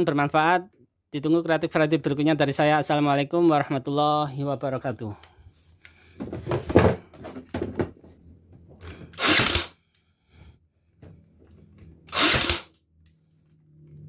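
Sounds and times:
cordless nailer firing: 9.1 - 9.8, 12.1 - 12.8.

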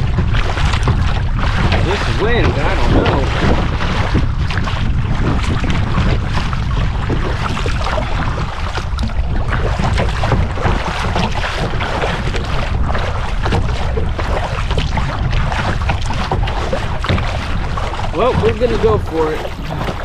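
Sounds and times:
water slapping against kayak: 0.0 - 20.0
wind buffeting microphone: 0.0 - 20.0.

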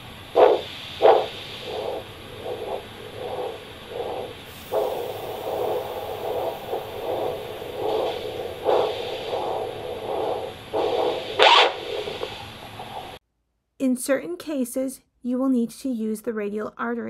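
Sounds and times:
doppler pulse whooshing: 0.0 - 13.2
scratchy burst: 0.0 - 13.2
static hiss: 0.0 - 13.2.

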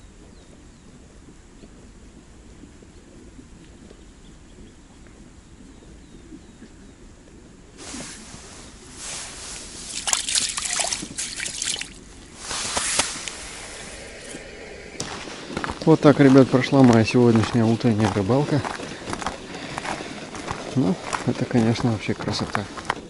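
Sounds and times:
faint outdoor hush: 0.9 - 23.0
water sloshing and dripping: 9.0 - 15.2
loud water splash: 9.0 - 15.7.

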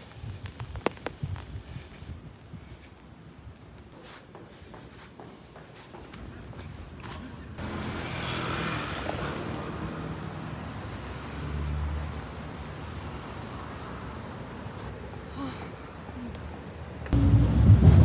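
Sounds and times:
footsteps on stairs: 3.9 - 7.3
cars passing on road: 7.6 - 18.0.

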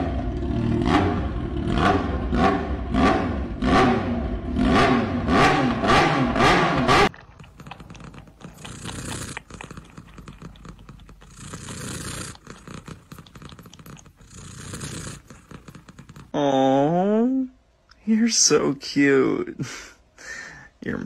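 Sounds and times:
cat purring: 7.1 - 16.4.

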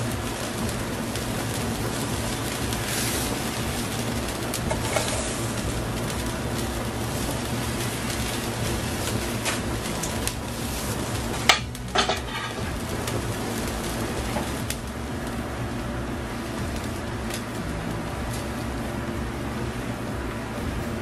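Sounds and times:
broth bubbling in a pan: 0.0 - 21.0
kitchenware clattering: 11.4 - 12.7.

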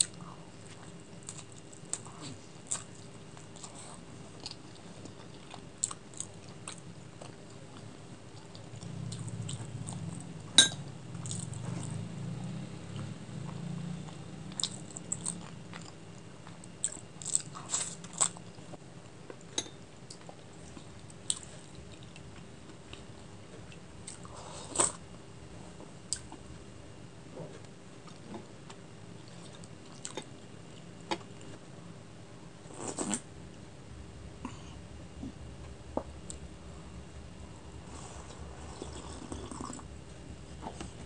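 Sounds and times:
close chewing with mouth clicks: 0.0 - 10.3, 12.9 - 18.7, 19.3 - 25.0, 27.4 - 31.6, 38.0 - 39.9.

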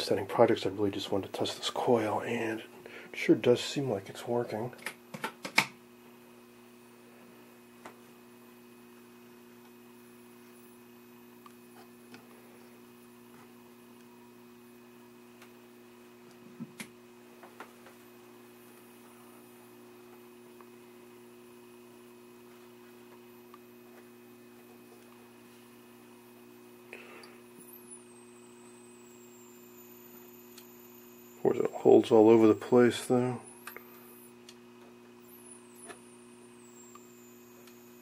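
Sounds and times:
low mains hum: 0.0 - 38.0
high-pitched whine: 25.6 - 34.4, 35.2 - 38.0.

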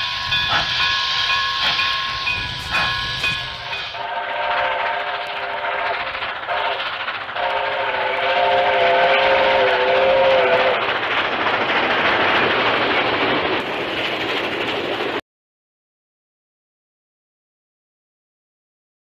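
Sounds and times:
train chord whistle: 0.0 - 10.8
train running: 0.0 - 15.2.

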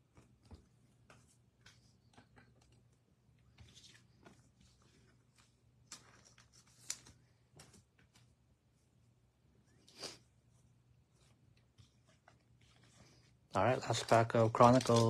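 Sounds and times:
cards clicking and rustling: 0.1 - 8.3, 11.6 - 15.0.

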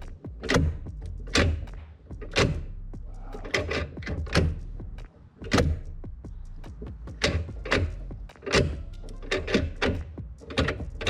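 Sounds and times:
gear shifter clacking: 0.0 - 2.7, 3.3 - 6.0, 6.6 - 11.0
low hum: 0.0 - 11.0.

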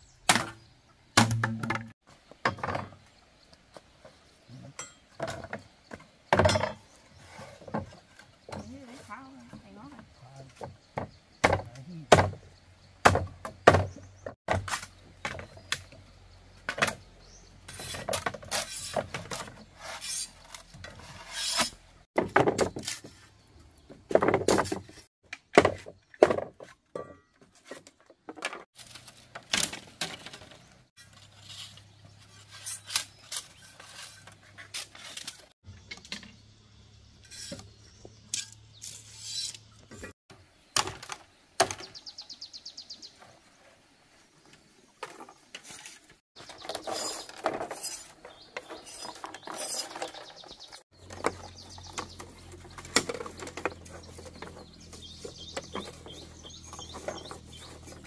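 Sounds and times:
machete chopping bamboo: 0.3 - 0.6, 1.2 - 1.9, 11.4 - 12.4, 13.0 - 13.9
blade scraping along bamboo: 17.6 - 22.0, 28.7 - 35.6, 37.2 - 40.2, 45.0 - 58.0.

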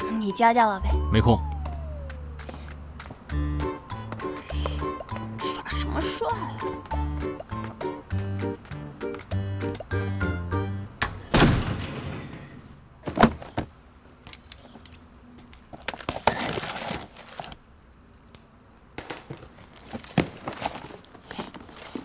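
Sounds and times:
heavy door shutting with a thud: 11.3 - 12.5
cardboard box crinkling and rustling: 15.7 - 17.6, 19.7 - 22.0.

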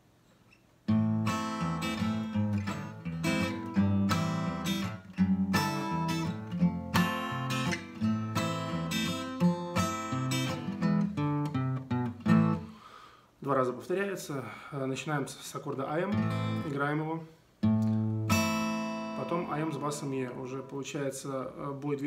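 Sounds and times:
acoustic guitar strumming: 0.9 - 12.9, 16.1 - 16.8, 17.6 - 21.0.

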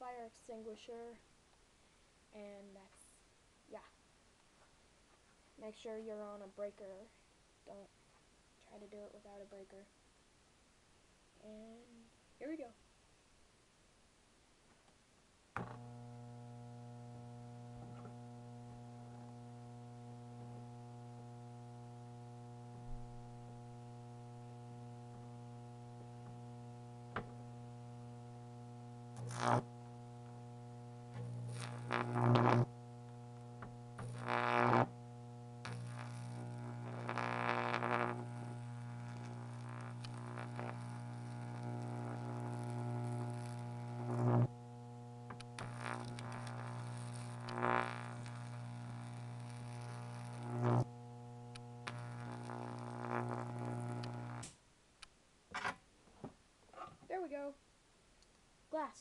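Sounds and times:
electric arc buzzing and crackling: 11.4 - 12.7, 15.5 - 55.7
transformer humming: 15.7 - 54.4.

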